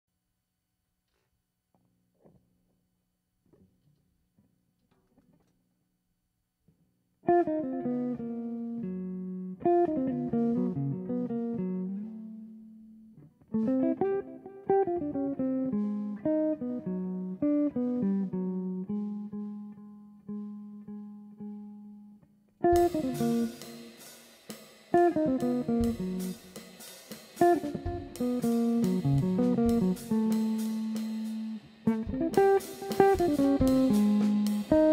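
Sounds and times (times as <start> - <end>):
electric guitar jazz chords: 7.3 - 34.9
drum kit with cymbals: 22.7 - 34.9.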